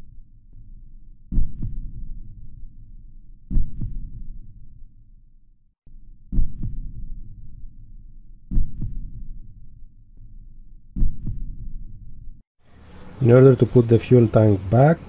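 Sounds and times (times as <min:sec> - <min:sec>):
heartbeat thumps: 0:01.3 - 0:02.0, 0:03.5 - 0:04.2, 0:06.3 - 0:06.9, 0:08.5 - 0:09.2, 0:11.0 - 0:11.7.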